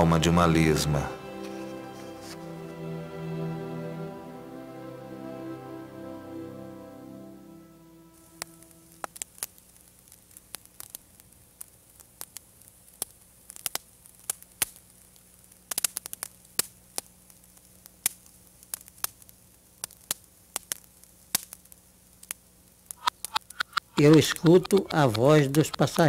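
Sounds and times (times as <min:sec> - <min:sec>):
faint steady hum: 0:00.0 - 0:15.7
wood fire crackling and popping: 0:08.4 - 0:26.0.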